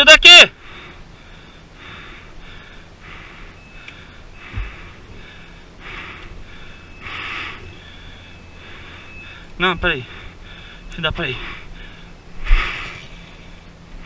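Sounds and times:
person breathing hard: 0.6 - 13.8
dull thump: 4.5 - 4.8.

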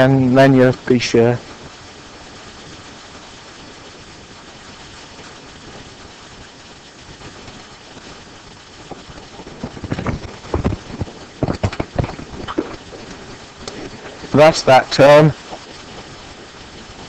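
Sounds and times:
room tone hiss: 0.0 - 17.0
irregular knocks and bumps: 8.8 - 14.2.

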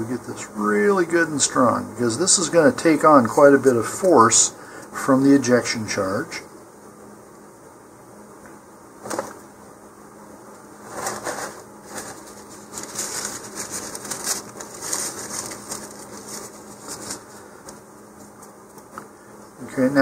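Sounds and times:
faint steady hum: 0.0 - 20.0
hands rustling and scraping parts: 10.8 - 19.1.

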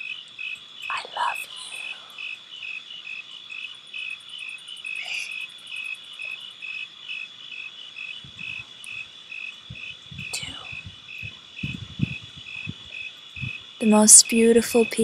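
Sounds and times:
insects chirping: 0.0 - 15.0
soft low thumps: 8.2 - 9.0, 9.7 - 13.7.

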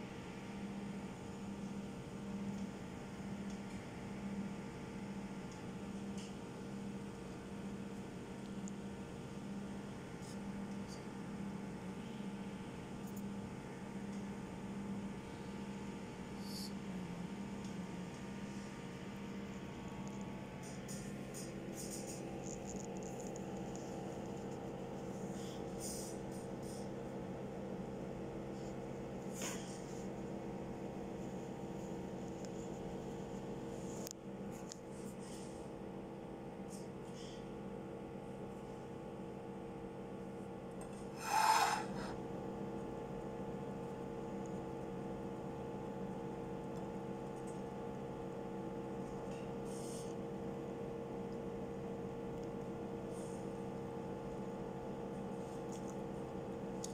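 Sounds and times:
electrical hum with hiss: 0.0 - 56.9
short rasping scrape: 41.1 - 42.2.

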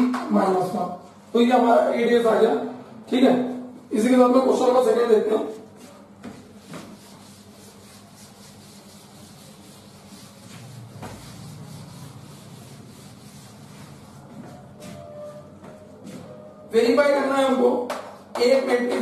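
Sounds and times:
cloth wiping a blackboard: 3.4 - 16.5.

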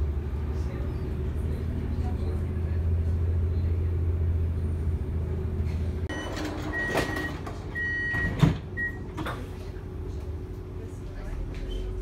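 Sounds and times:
high door warning beeps: 6.1 - 9.1
sliding doors knocking and clunking: 6.1 - 9.5.

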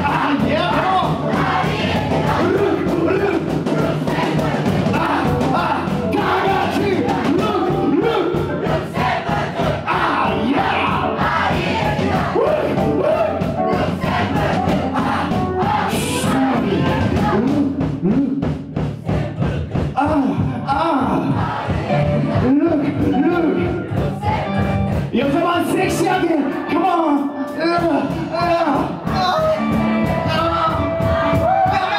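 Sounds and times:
crowd singing and shouting: 0.0 - 31.9
punk rock band playing live: 0.0 - 31.9.

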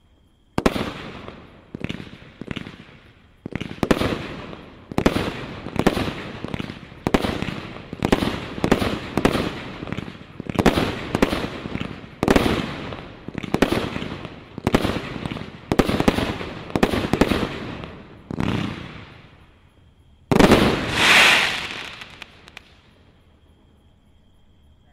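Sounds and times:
fireworks bangs: 0.5 - 19.4, 20.3 - 23.0.

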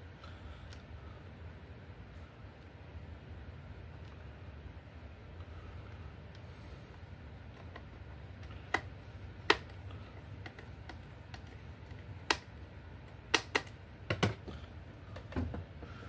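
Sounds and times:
low steady hum: 0.0 - 16.0
plastic clicks and knocks: 13.3 - 14.6.

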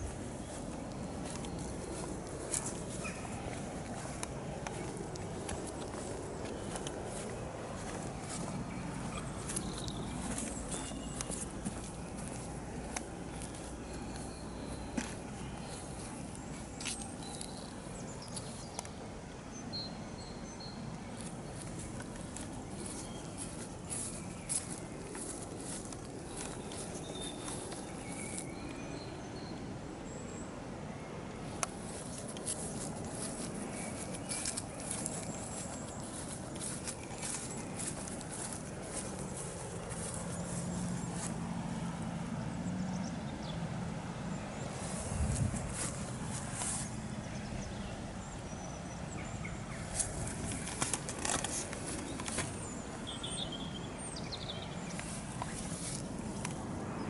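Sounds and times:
bird chirps: 0.0 - 4.1, 7.8 - 12.5
footsteps through grass: 0.0 - 18.8, 21.0 - 28.8, 31.6 - 41.8, 44.6 - 47.7, 49.7 - 53.4, 54.8 - 56.7
birds chirping: 0.0 - 57.0.

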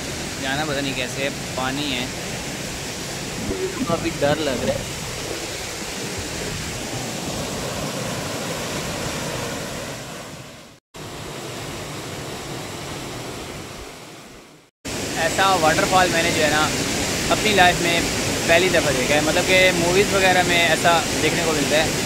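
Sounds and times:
waterfall pouring into a pool: 14.9 - 22.0.

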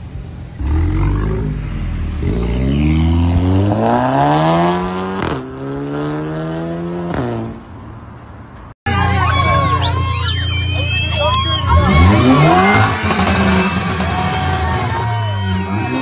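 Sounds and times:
car engine revving: 0.3 - 7.8, 11.6 - 16.0.

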